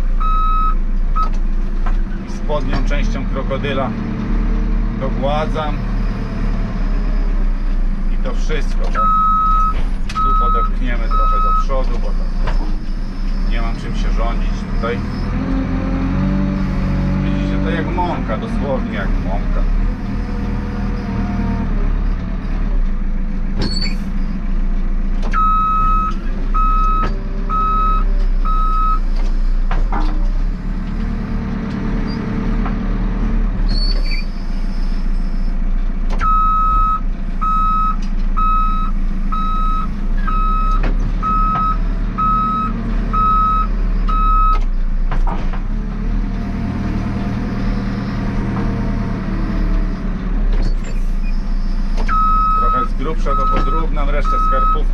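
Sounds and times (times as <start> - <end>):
diesel engine running: 0.0 - 54.9
reversing alarm beeping: 0.2 - 1.3, 9.0 - 11.7, 25.4 - 29.0, 36.2 - 44.6, 52.1 - 54.9.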